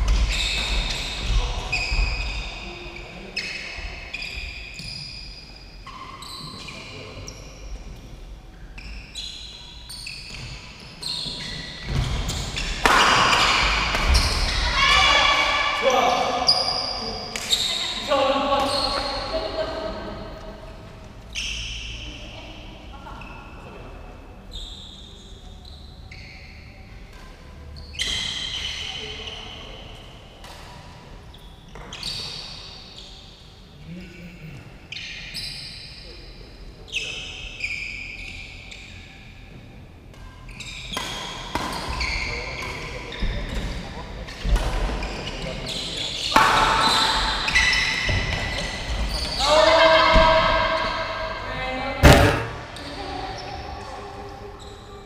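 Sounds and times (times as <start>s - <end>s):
sneakers squeaking on court floor: 0.0s - 8.1s, 8.7s - 15.4s, 16.3s - 19.6s, 24.5s - 33.3s, 40.2s - 55.0s
rackets hitting shuttlecock: 12.8s - 14.2s, 52.0s - 52.8s
footsteps: 52.0s - 52.8s.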